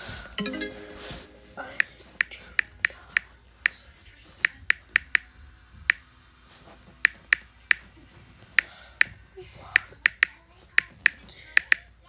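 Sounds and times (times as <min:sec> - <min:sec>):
on-screen keyboard clicks: 0:04.4 - 0:05.2, 0:09.8 - 0:11.8.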